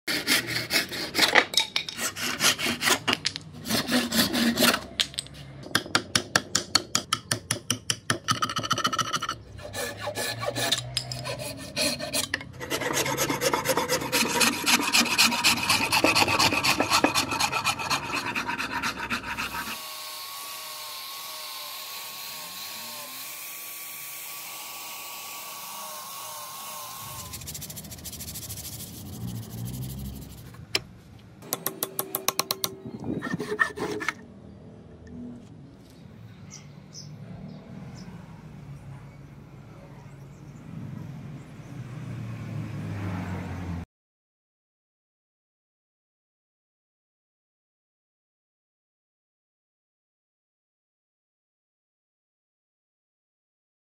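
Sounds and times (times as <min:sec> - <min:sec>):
file rasping along wood: 0:00.1 - 0:04.9, 0:08.6 - 0:20.0, 0:33.1 - 0:34.2
handsaw cutting wood: 0:00.1 - 0:05.0, 0:09.0 - 0:30.4, 0:33.1 - 0:34.2.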